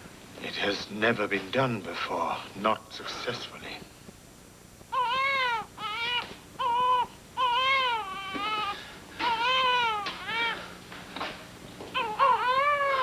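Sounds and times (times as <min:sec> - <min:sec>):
newborn baby crying: 0:04.9 - 0:10.8, 0:11.9 - 0:13.0.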